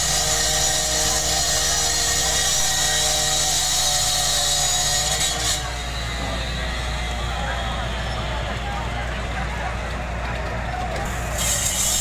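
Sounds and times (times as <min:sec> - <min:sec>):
power cutter cutting steel: 0:00.0 - 0:07.7, 0:11.1 - 0:12.0.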